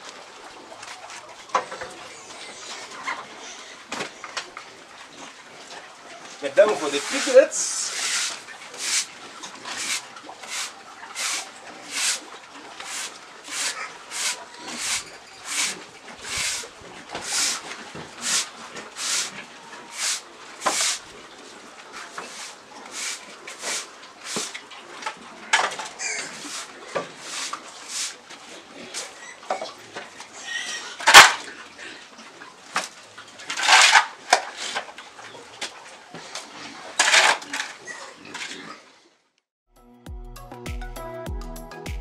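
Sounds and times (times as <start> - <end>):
stiff broom sweeping floor: 6.6 - 9.1, 9.7 - 12.2, 12.8 - 21.0, 22.1 - 24.6, 26.3 - 28.2.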